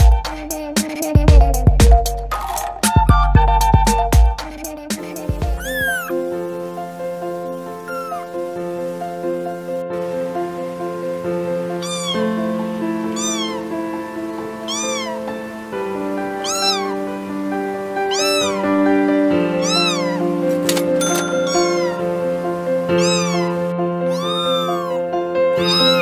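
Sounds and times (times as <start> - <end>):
background music with held notes: 0.0 - 26.0
kitten meowing: 5.4 - 6.2, 7.7 - 8.5, 11.8 - 15.4, 16.3 - 17.2, 18.0 - 18.8, 19.5 - 20.5, 21.2 - 26.0.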